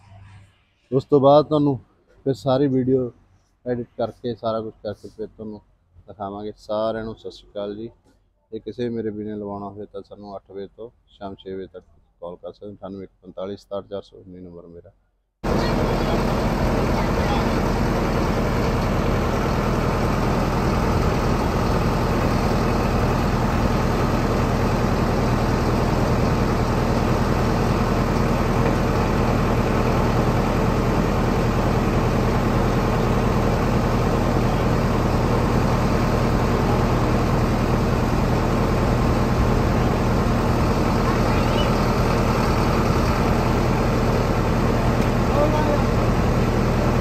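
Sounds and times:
tractor diesel engine idling: 15.4 - 47.0.

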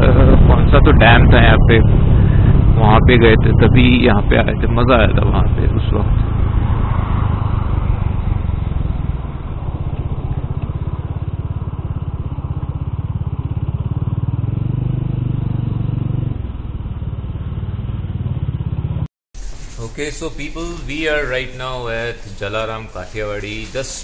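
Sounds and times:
wind noise: 0.0 - 11.1
motorcycle engine running: 0.0 - 19.1, 20.0 - 24.0.

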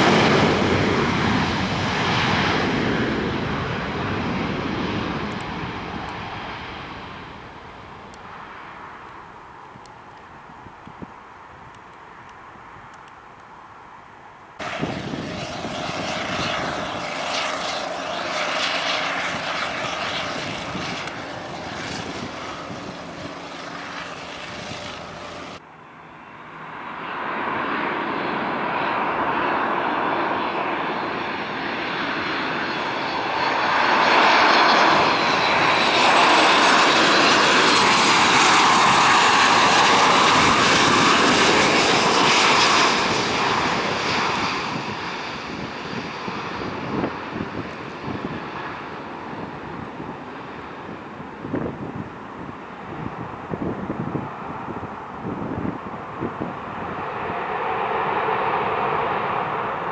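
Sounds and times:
jet engines at takeoff power: 0.0 - 59.9
jet plane passing low: 0.0 - 59.9
high engine whine: 14.6 - 59.9.

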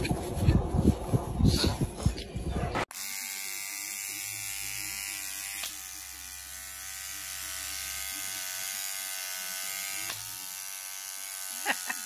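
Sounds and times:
electric toothbrush buzzing: 2.9 - 12.0.

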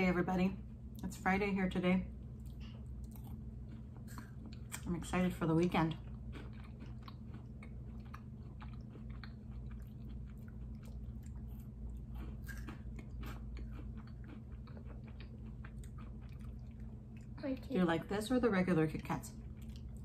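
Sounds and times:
steady low hum: 0.0 - 20.0
chewing chocolate wafer: 2.3 - 17.4, 19.3 - 20.0.

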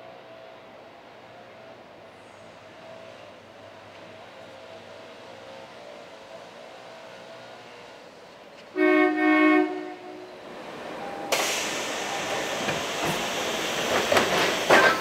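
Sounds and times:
train rolling alongside platform: 0.0 - 15.0
monorail train horn blasts: 8.7 - 10.4.

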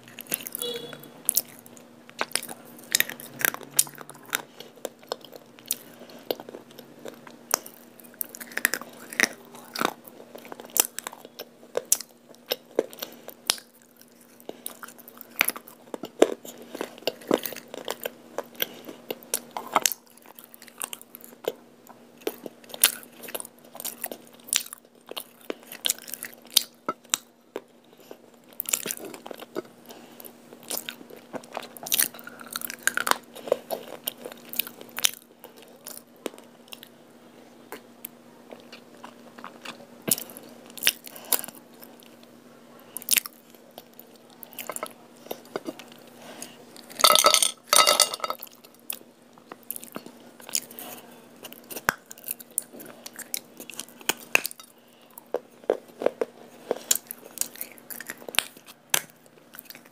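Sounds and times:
chewing: 0.0 - 37.0, 37.7 - 59.9
faint low hum: 0.0 - 59.9.

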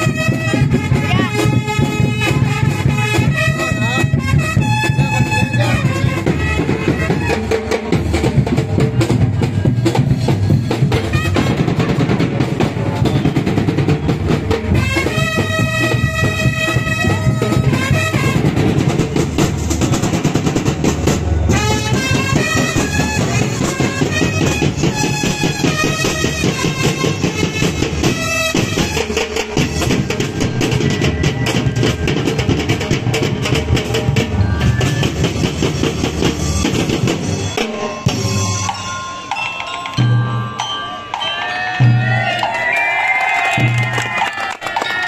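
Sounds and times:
brass melody: 0.0 - 8.2, 10.9 - 31.6
dense drumming: 0.0 - 38.7.

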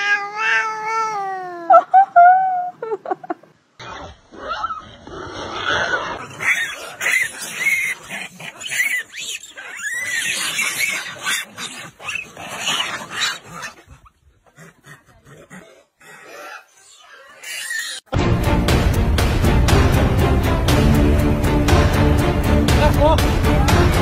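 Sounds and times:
monkeys squealing and screeching: 5.7 - 15.0, 16.1 - 18.1.

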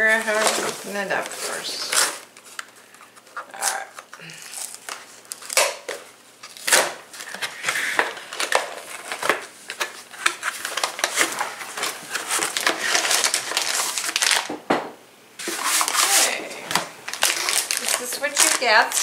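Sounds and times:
plastic packaging crinkling: 0.0 - 14.5, 15.4 - 19.0
cardboard box tearing: 10.1 - 14.4, 15.4 - 16.5, 17.1 - 19.0.

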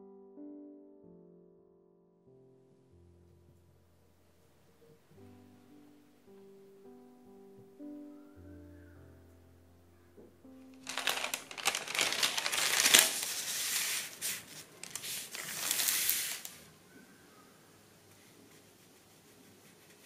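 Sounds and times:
paper crinkling and rustling: 10.8 - 16.7.

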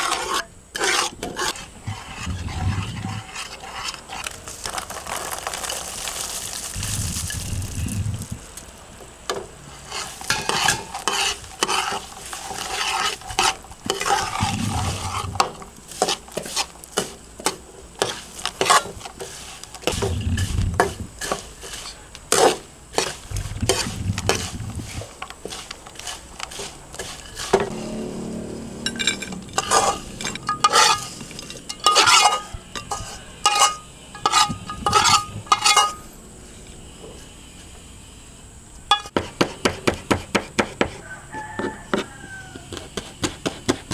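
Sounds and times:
spatula scraping a wok: 0.0 - 8.6, 9.6 - 37.8, 38.9 - 43.9
food sizzling: 0.8 - 8.8, 9.7 - 36.0.

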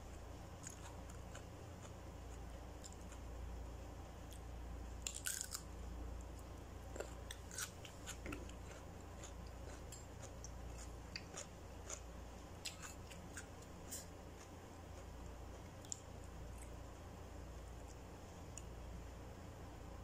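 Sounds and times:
crunching cucumber: 5.0 - 5.7, 7.0 - 15.1.

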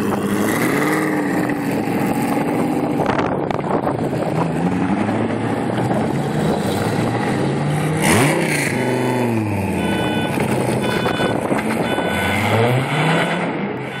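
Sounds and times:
sports car engine revving: 4.4 - 14.0.

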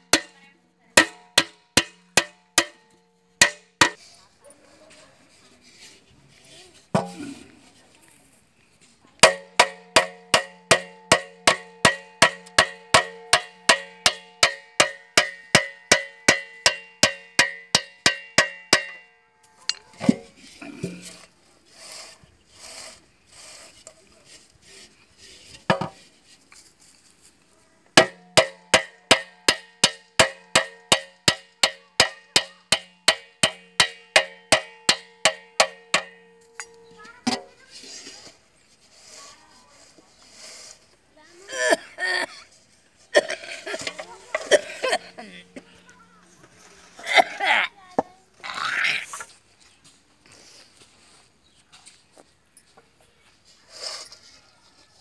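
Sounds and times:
hammer striking ringing metal pot: 1.0 - 4.0, 9.2 - 19.1, 28.0 - 37.4.

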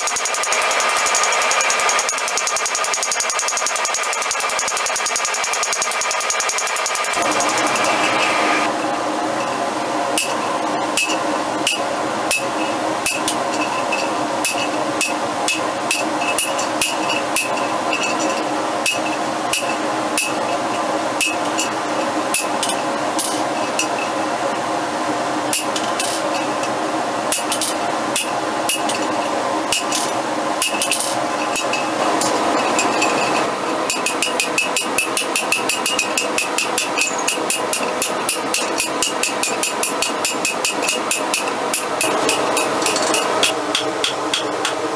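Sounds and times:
steady hum: 6.7 - 44.9
hammer striking metal die: 33.9 - 44.8.

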